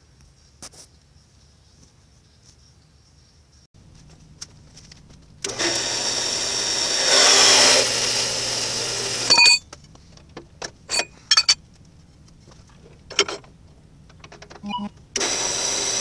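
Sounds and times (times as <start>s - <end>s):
band saw cutting steel: 5.4s - 9.6s, 15.2s - 16.0s
short metallic ring: 9.3s - 9.6s, 10.9s - 11.6s.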